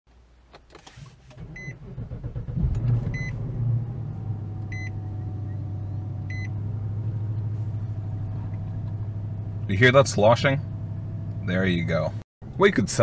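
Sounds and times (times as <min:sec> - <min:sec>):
car engine starting and idling: 0:00.4 - 0:13.0
dashboard warning chime beeping: 0:01.5 - 0:01.8, 0:03.1 - 0:03.4, 0:04.7 - 0:05.6, 0:06.2 - 0:06.6.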